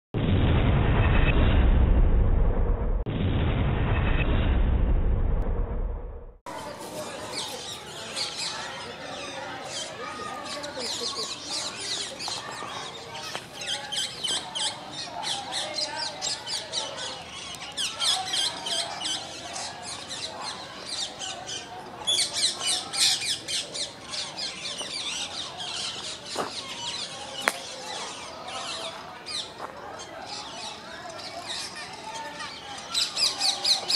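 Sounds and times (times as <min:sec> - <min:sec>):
flock of birds chirping: 0:06.5 - 0:33.9.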